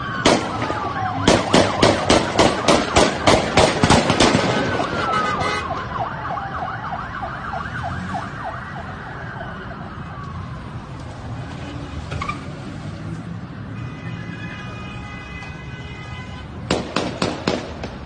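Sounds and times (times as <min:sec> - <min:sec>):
siren wailing slowly: 0:00.0 - 0:03.0, 0:04.6 - 0:11.4
low traffic rumble: 0:00.0 - 0:18.0
sharp crack: 0:00.2 - 0:05.1, 0:16.7 - 0:18.0.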